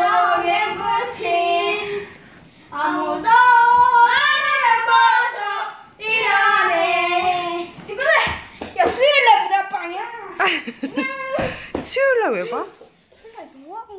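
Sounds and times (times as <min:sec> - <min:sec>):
children singing: 0:00.0 - 0:02.1, 0:02.7 - 0:07.7.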